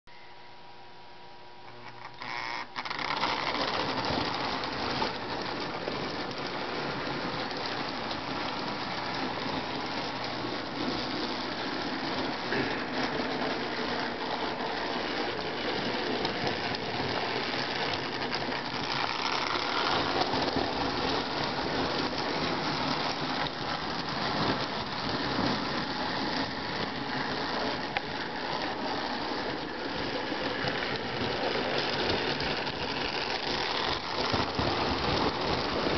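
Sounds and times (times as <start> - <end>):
toy train motor whirring: 1.8 - 35.9
toy train wheels rattling on track: 1.9 - 35.9.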